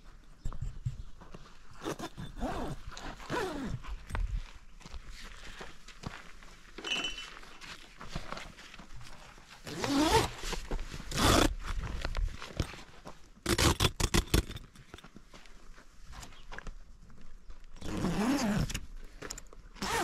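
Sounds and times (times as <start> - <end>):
tent canvas rustling and scraping: 1.7 - 3.9, 8.2 - 12.9.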